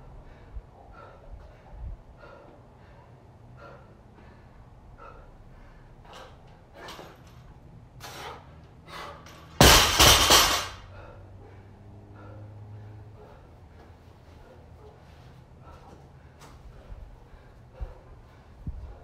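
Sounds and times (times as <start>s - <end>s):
barbell crashing onto mats: 9.6s - 10.8s.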